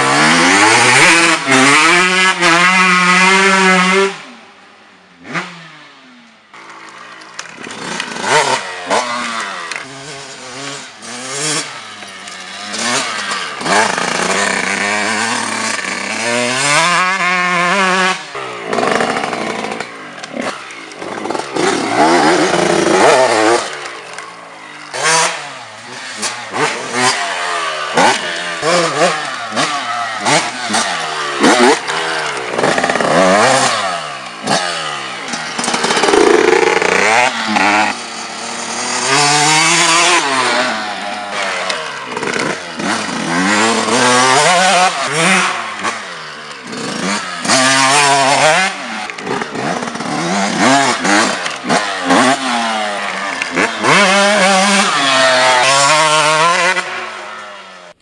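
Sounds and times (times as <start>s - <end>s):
motorbike engine revving: 0.0s - 4.4s, 5.2s - 58.0s.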